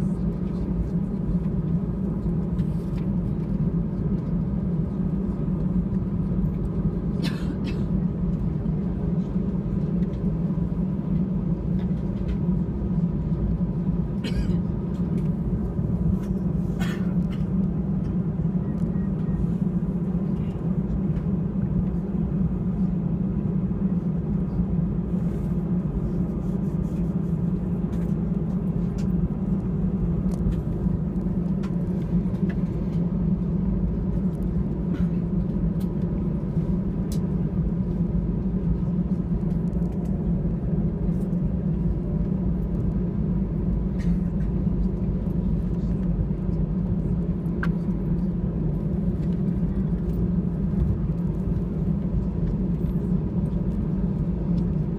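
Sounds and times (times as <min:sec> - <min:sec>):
jet engines humming: 0:00.0 - 0:54.9.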